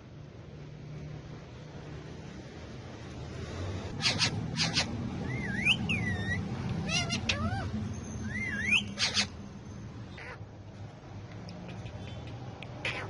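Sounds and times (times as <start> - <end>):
parakeet squawks: 3.9 - 9.4, 10.1 - 10.5, 11.7 - 13.0
parakeets whistling: 3.9 - 9.4, 10.1 - 10.4.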